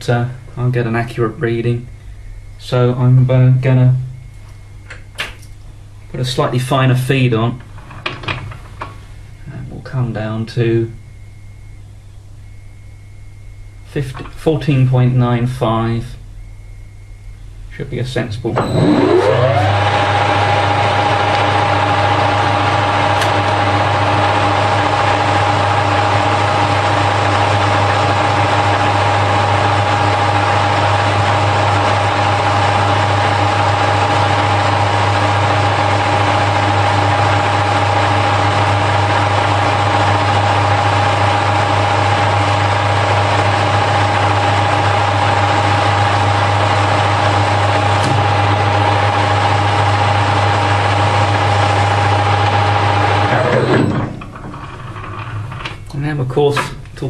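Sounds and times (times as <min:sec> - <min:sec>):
lathe motor hum: 0:18.6 - 0:55.9
metal lathe whining: 0:18.6 - 0:56.0.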